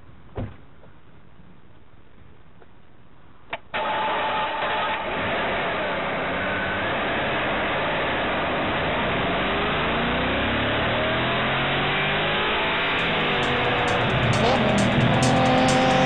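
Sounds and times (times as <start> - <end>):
car engine accelerating hard: 3.8 - 16.0.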